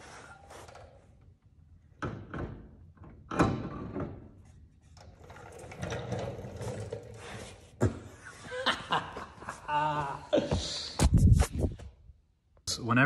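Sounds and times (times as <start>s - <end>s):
metal scraping and clatter: 4.4s - 7.6s.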